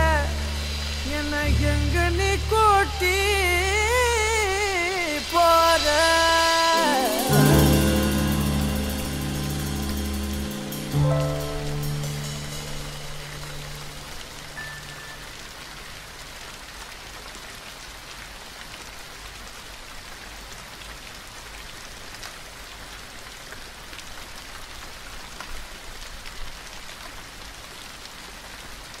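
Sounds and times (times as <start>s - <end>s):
low music note: 0.0s - 15.6s
steady rain: 0.0s - 29.0s.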